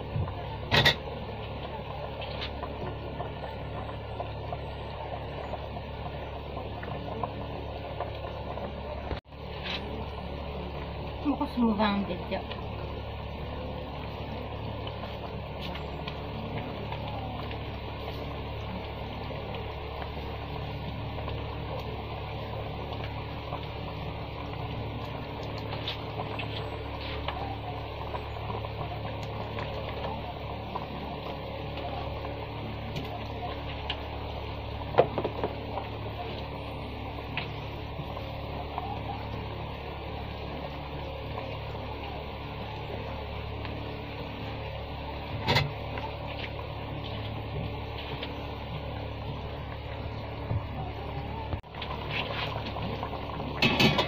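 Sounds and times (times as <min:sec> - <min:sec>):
gravy bubbling in a wok: 0:00.0 - 0:54.0
low hum: 0:00.0 - 0:54.0.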